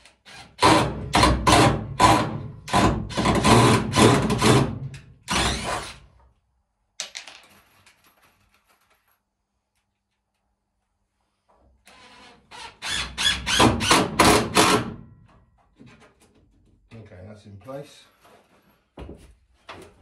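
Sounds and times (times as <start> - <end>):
cordless drill drilling into wood: 5.3 - 6.0, 11.9 - 14.8.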